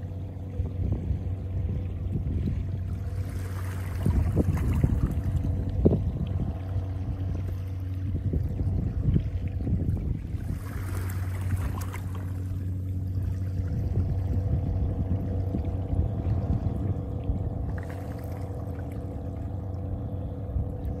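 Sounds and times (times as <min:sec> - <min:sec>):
boat engine droning: 0:00.0 - 0:21.0
water lapping against rocks: 0:02.3 - 0:14.4.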